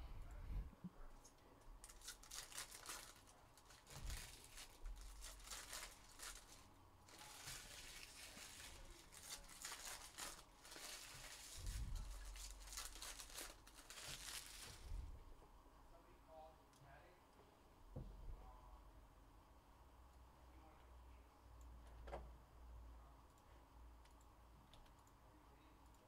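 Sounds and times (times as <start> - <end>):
card pack wrappers crinkling and tearing: 1.8 - 14.9.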